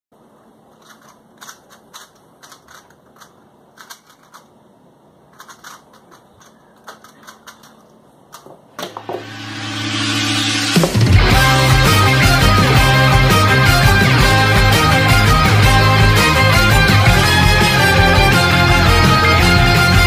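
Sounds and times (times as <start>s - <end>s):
plastic puzzle cube clicking: 0.7s - 4.5s, 5.3s - 8.5s
rock music: 9.2s - 20.0s.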